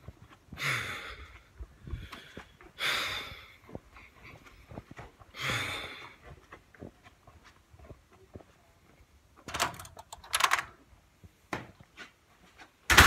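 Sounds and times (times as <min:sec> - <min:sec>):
heavy breaths: 0:00.0 - 0:07.1.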